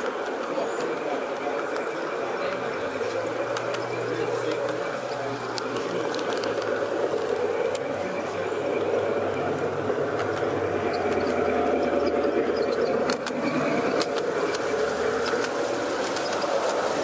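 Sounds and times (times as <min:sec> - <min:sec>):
model train motor hum: 0:00.0 - 0:17.0
wheels clicking on track: 0:00.0 - 0:17.0.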